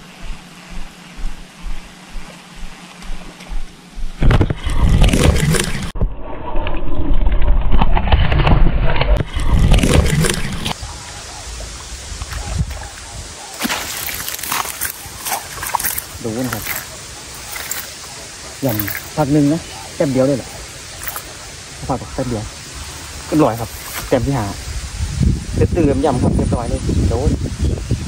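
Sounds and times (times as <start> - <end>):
low rhythmic knocking: 0.0 - 4.5
microphone handling rumble: 0.0 - 6.1
faint hum: 0.0 - 7.3.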